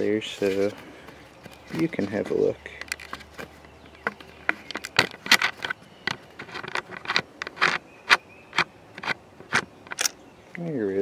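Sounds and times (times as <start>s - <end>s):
metal parts clicking and scraping: 1.6s - 10.2s.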